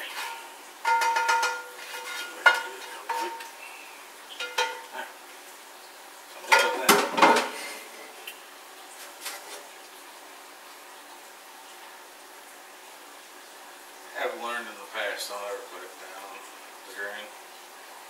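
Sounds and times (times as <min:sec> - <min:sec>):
pan knocking against metal colander: 0:00.2 - 0:03.4, 0:04.4 - 0:04.9, 0:06.5 - 0:07.5.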